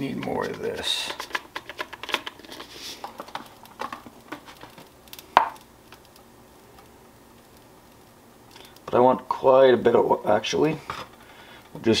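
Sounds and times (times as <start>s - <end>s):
spice shaker taps and rattles: 0.1s - 6.0s.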